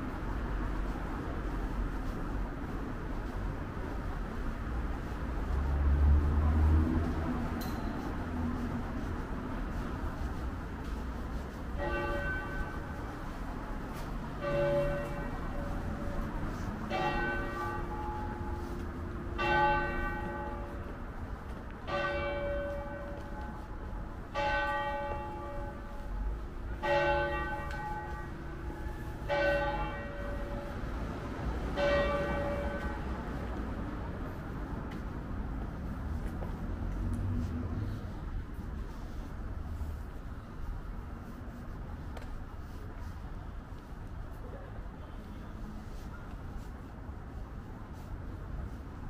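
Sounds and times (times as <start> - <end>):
tower clock bell striking: 11.8 - 13.0, 14.4 - 16.3, 16.9 - 18.6, 19.4 - 20.9, 21.9 - 23.7, 24.3 - 30.8, 31.8 - 33.0.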